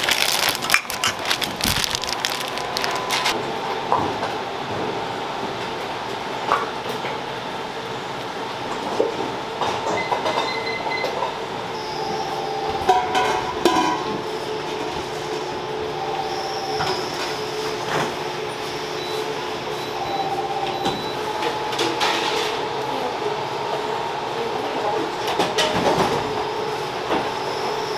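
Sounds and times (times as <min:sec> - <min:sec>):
machine hum: 0:00.0 - 0:06.1.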